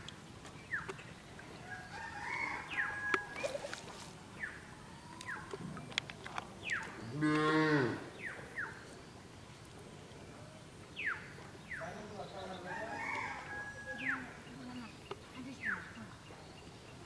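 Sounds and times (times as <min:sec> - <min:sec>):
cow mooing: 0:07.1 - 0:08.0.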